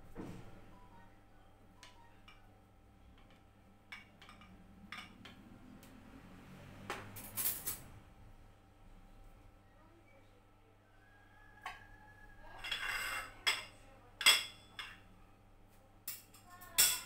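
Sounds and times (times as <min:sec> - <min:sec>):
cutlery and crockery clatter: 0:03.2 - 0:05.5, 0:06.9 - 0:07.9, 0:12.5 - 0:15.1, 0:16.0 - 0:17.0
knife scraping ceramic plate: 0:12.6 - 0:13.4.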